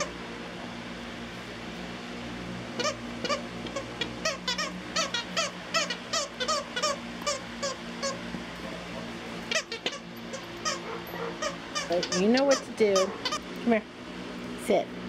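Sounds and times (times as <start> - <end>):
dog toy squeaking: 2.8 - 8.2, 9.5 - 13.4.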